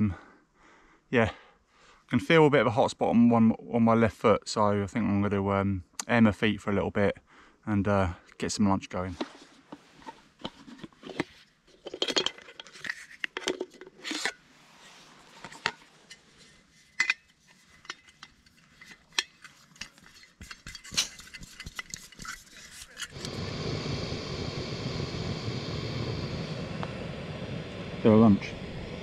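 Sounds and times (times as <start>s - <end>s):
metal and plastic parts clinking: 10.4s - 14.4s, 16.8s - 23.2s
gas burner hissing: 22.7s - 29.0s.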